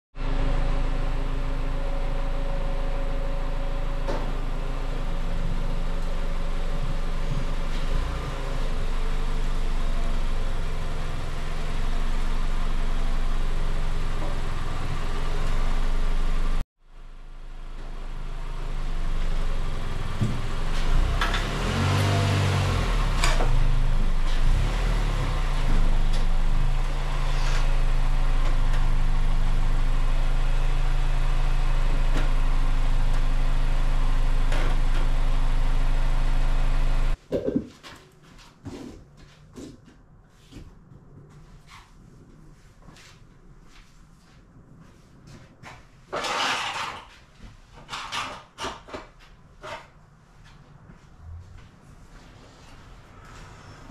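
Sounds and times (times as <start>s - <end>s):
car engine running: 0.2s - 37.2s.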